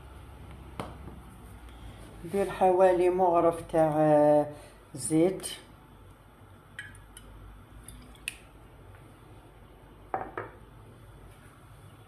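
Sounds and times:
bottle knocking on stone countertop: 10.1 - 10.6.

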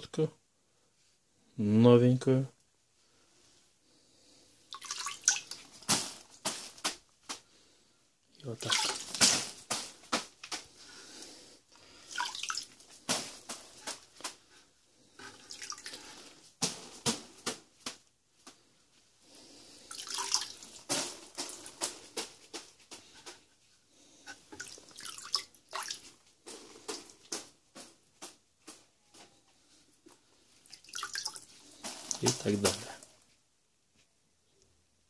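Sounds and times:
water spattering onto mortar: 4.7 - 6.8, 8.6 - 9.9, 12.1 - 14.0, 19.9 - 21.6, 30.7 - 33.1.

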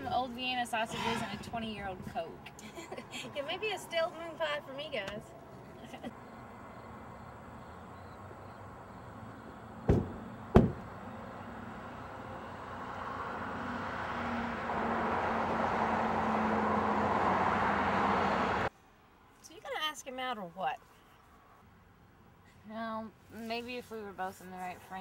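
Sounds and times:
rush of vehicle noise: 0.0 - 18.7
car door slamming: 9.8 - 10.9.

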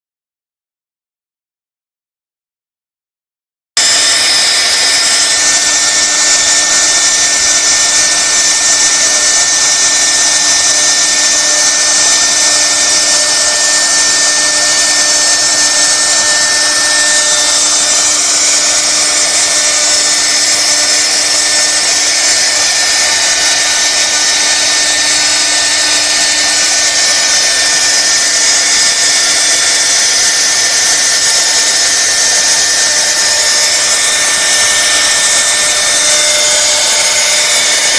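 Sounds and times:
bit cutting wood hiss: 3.8 - 37.9
router spindle whine: 3.8 - 37.9.

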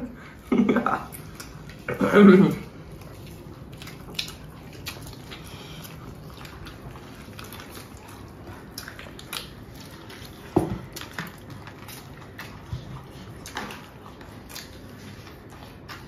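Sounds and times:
chewing: 0.3 - 16.0.

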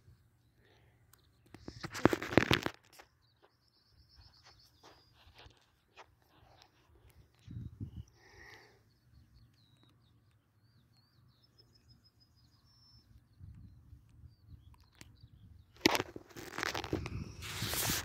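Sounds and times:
small bird chirping and trilling: 2.8 - 5.7, 6.4 - 17.5.

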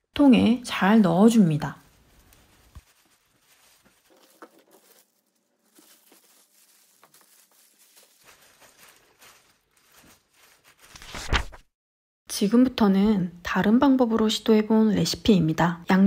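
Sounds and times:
gloved hands squelching food: 1.7 - 11.0.

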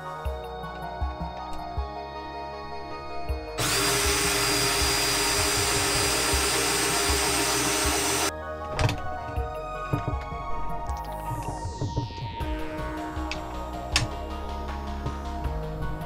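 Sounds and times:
soft background music: 0.0 - 16.0
cordless drill running: 3.6 - 8.3.

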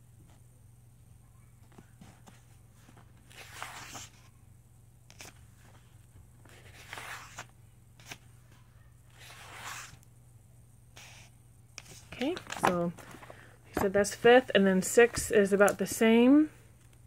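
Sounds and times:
paper pages turning: 1.7 - 4.3, 5.1 - 8.3, 9.1 - 10.0, 11.8 - 14.1.

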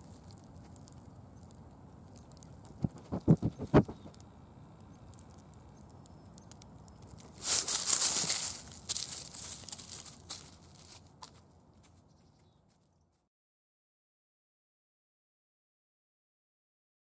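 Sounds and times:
faint outdoor background: 0.0 - 13.3
animal sniffing at microphone: 2.8 - 4.1.

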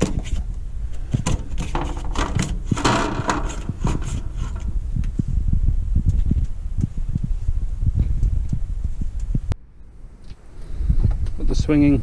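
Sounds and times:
steady low rumble: 0.0 - 12.0
rasping scrape: 1.0 - 4.7
plastic vent clicks and knocks: 1.2 - 4.7.

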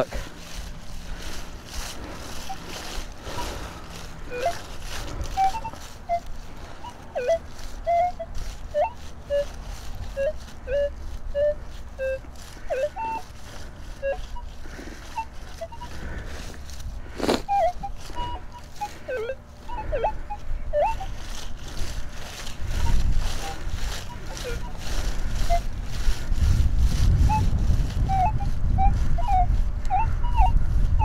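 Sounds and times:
metal detector beeping: 0.0 - 31.0.

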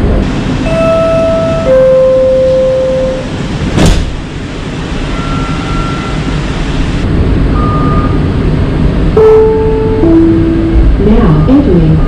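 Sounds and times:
train wheels rumbling on track: 0.0 - 12.0.

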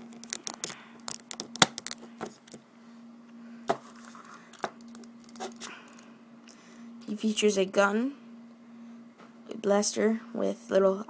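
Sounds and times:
faint steady hum: 0.0 - 11.0
plastic toy parts clicking: 0.1 - 2.0.

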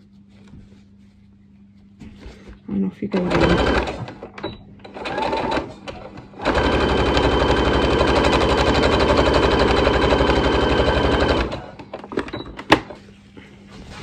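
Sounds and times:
sewing machine stitching: 3.2 - 11.8.

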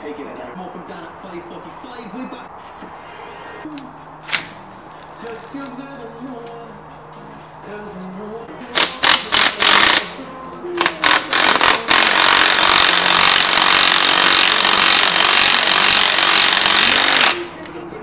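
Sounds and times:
power tool running: 10.8 - 17.4.

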